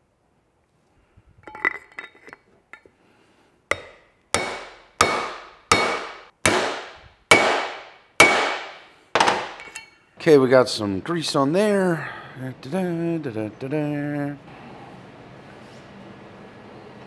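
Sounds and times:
hammer striking metal tool: 3.7 - 10.0.

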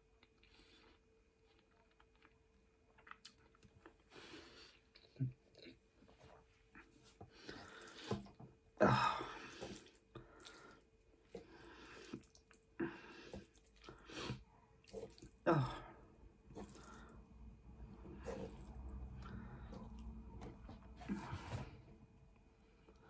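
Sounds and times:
person chewing and slurping: 9.4 - 15.4, 16.4 - 21.4.

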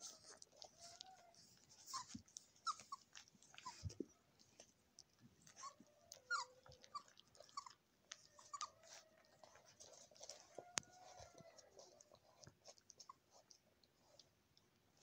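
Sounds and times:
puppies squeaking and whimpering: 0.0 - 4.1, 5.5 - 12.0.

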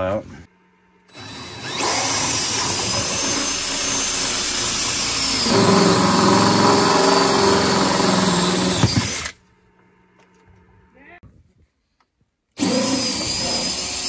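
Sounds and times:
drill cutting sheet metal: 1.1 - 9.4, 12.6 - 14.0.

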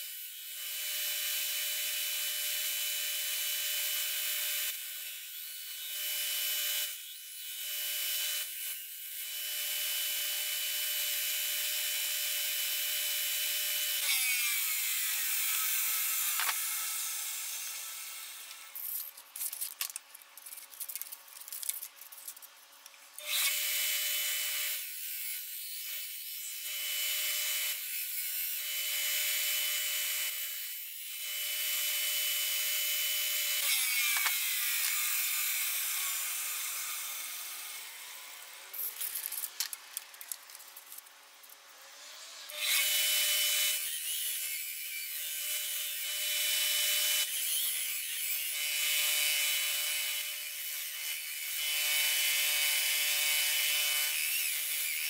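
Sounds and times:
sander running on wood: 0.0 - 19.2, 23.2 - 40.8.

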